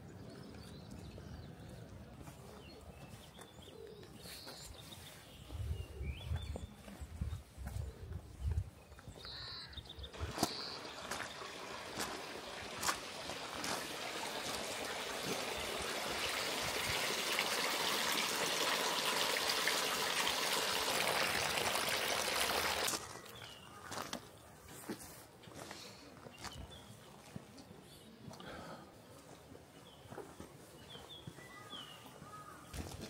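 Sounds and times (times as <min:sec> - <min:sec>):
water trickling and splashing: 0:10.2 - 0:23.4.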